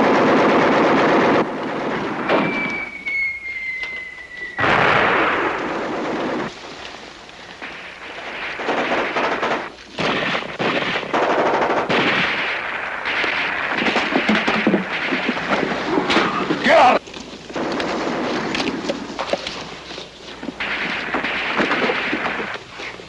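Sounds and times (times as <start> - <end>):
machine-gun and rifle fire: 0.0 - 2.7, 4.6 - 6.5, 7.6 - 16.5, 17.6 - 18.8, 20.6 - 22.7
thin falling whistle: 2.3 - 4.7.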